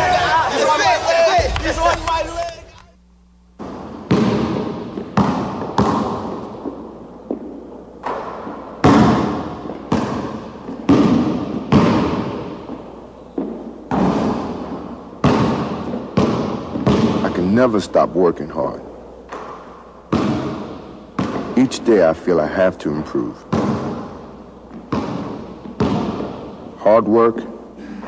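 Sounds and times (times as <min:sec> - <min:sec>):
basketball bouncing with echo: 0:03.6 - 0:26.8.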